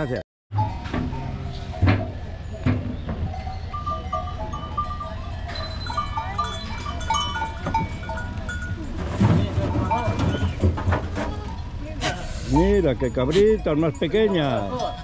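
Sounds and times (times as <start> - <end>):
small animal bells tinkling: 0.6 - 9.0, 12.6 - 15.0.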